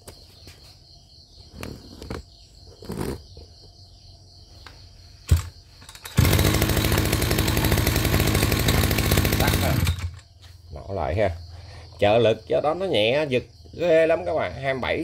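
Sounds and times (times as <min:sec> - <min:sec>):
two-stroke engine running: 0:05.3 - 0:10.2.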